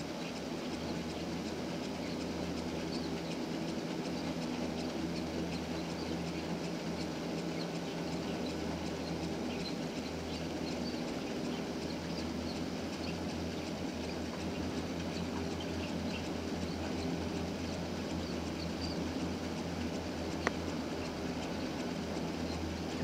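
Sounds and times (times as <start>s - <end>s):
gondola lift hum: 0.0s - 23.0s.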